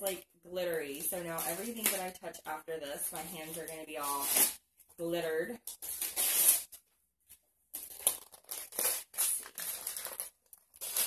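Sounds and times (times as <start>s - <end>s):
wrapping paper crinkling and tearing: 7.8s - 11.0s.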